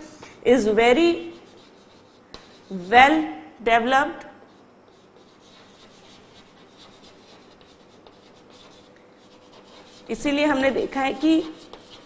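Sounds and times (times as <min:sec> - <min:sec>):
chalk scratching on blackboard: 0:00.9 - 0:03.1, 0:04.4 - 0:12.0.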